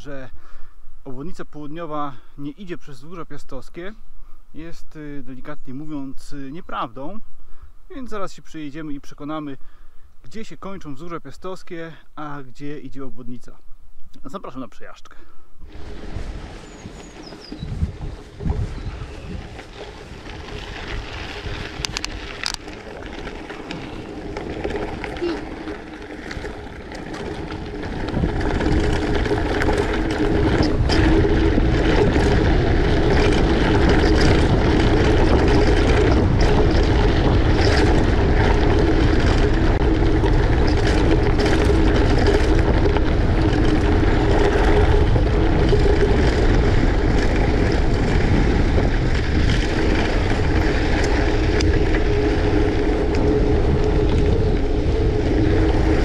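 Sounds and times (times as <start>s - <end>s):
ride rolling noise: 15.6s - 56.0s
wind buffeting microphone: 15.6s - 56.0s.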